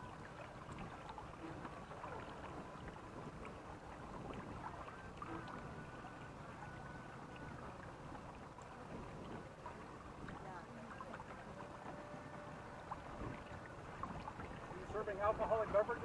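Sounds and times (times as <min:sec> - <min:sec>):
small splashes: 0:00.0 - 0:16.0
water lapping against hulls: 0:00.0 - 0:16.0.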